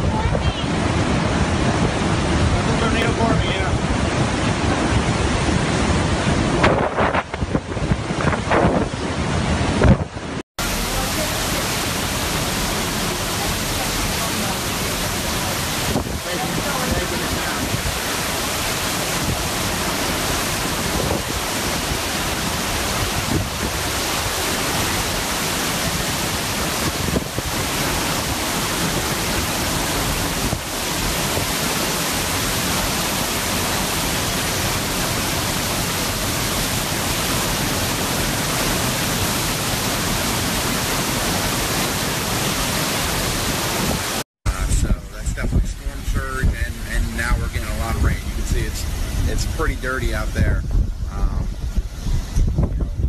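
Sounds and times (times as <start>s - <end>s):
driving rain: 0.0s - 53.0s
strong wind: 0.0s - 53.0s.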